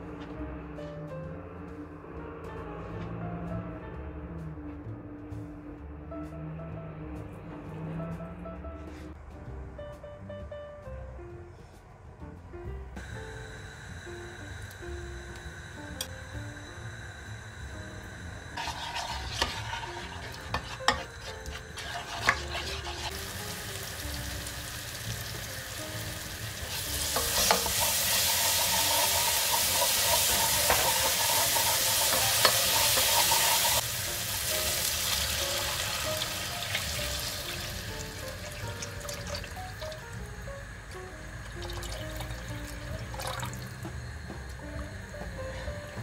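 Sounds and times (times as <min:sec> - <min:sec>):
paste sizzling in hot oil: 0:13.4 - 0:40.4
water pouring: 0:34.7 - 0:40.0, 0:41.5 - 0:43.7.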